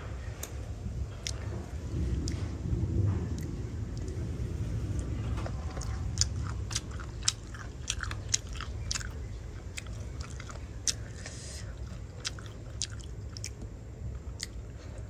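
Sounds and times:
steady low hum: 0.0s - 15.0s
person chewing wetly: 1.2s - 1.6s, 2.2s - 2.5s, 5.0s - 15.0s.

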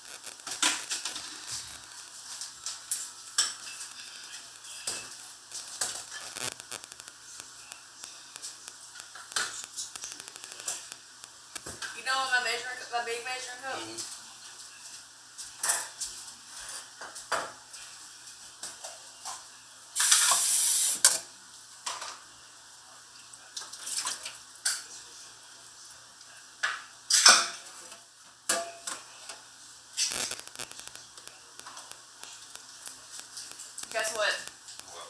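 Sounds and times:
short hiss: 20.0s - 21.1s
pots and dishes clattering: 26.6s - 29.4s.

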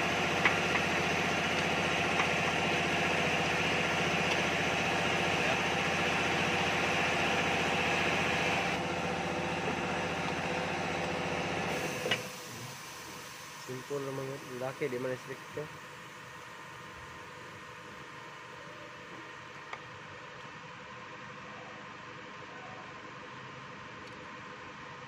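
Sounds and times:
engine idling: 0.0s - 21.8s.

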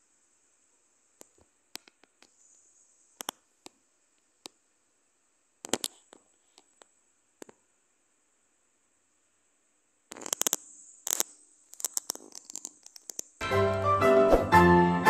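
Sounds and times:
steady high hiss: 0.0s - 13.4s
faint clicks and taps: 1.2s - 2.6s, 3.2s - 4.6s, 10.1s - 13.4s.

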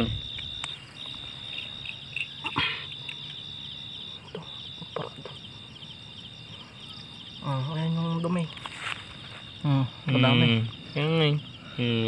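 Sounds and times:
night insects trilling: 0.0s - 12.0s.

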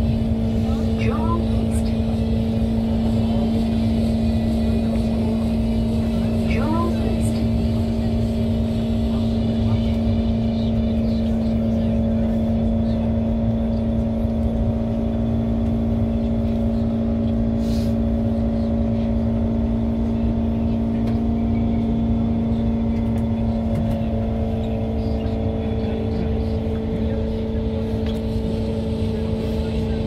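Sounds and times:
traction motor tonal hum: 0.0s - 30.0s
train wheels rumbling on rail: 0.0s - 30.0s.

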